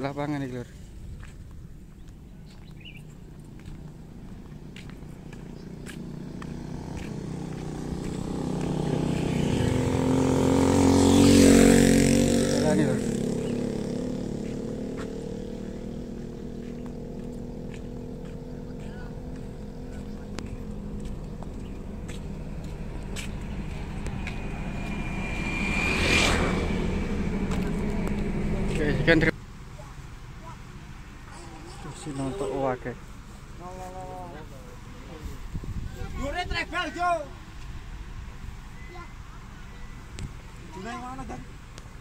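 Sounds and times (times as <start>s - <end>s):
motorcycle engine approaching: 1.9s - 29.4s
thin steady whine: 19.9s - 29.3s.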